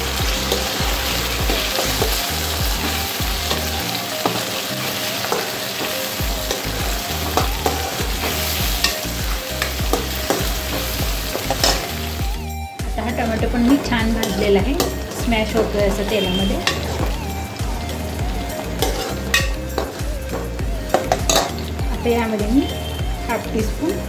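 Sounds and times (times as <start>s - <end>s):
onion and tomato sizzling in oil: 0.0s - 24.0s
spatula scraping a pan: 17.8s - 21.7s.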